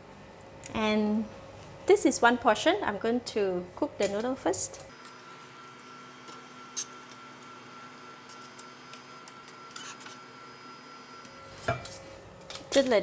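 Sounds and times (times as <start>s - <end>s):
thin high whine: 4.9s - 12.0s.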